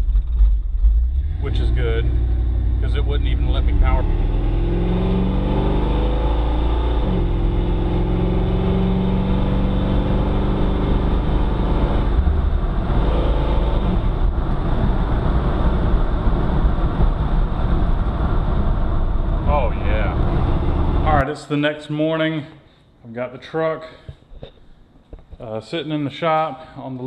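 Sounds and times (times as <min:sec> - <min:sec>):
road rumble: 0:00.0 - 0:21.2
truck engine accelerating: 0:00.0 - 0:21.2.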